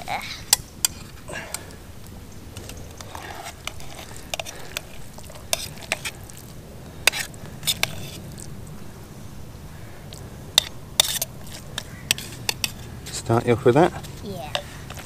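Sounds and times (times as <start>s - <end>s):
utensil scraping and clicking in bowl: 2.6s - 6.4s, 7.1s - 8.2s, 10.6s - 13.2s.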